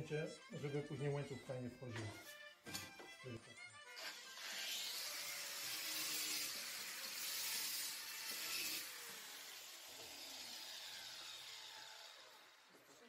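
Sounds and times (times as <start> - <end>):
rasping metal cutting: 3.9 - 12.9.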